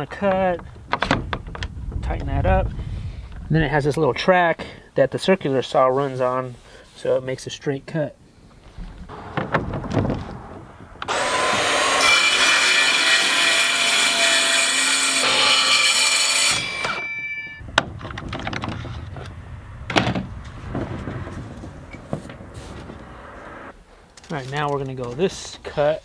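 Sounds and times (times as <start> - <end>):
wooden knocks: 8.8 - 11.1
saw cutting plywood: 9.1 - 17.1.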